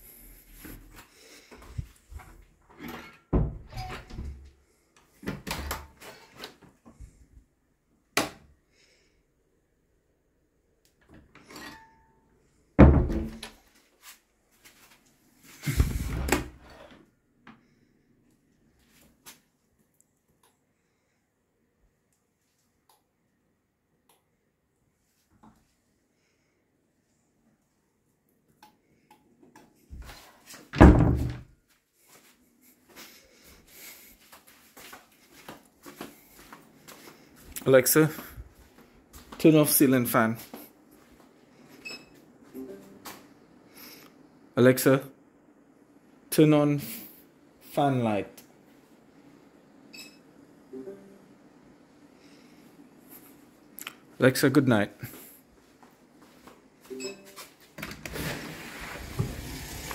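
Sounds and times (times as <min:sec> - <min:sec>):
door thud: 0:12.8 - 0:13.5, 0:30.8 - 0:31.4
door scraping: 0:57.8 - 0:59.9.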